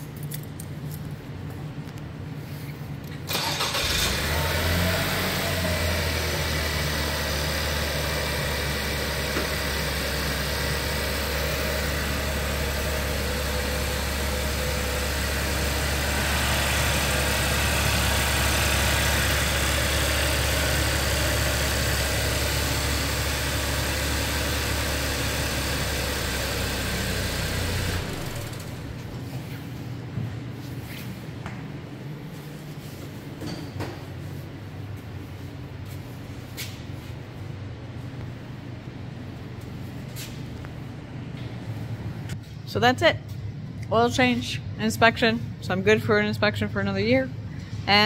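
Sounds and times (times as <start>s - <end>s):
car engine starting and idling: 3.1s - 29.4s.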